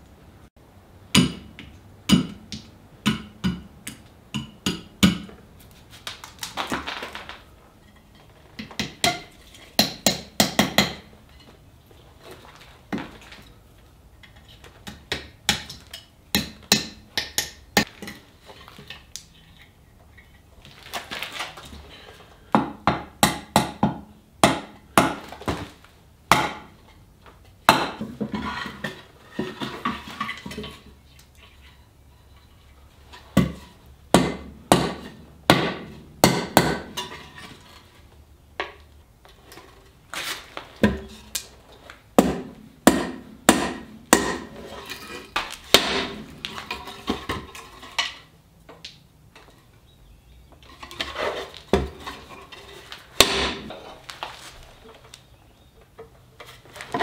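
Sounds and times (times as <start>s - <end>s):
sharp wooden knocks: 45.4s - 46.5s, 53.2s - 53.8s.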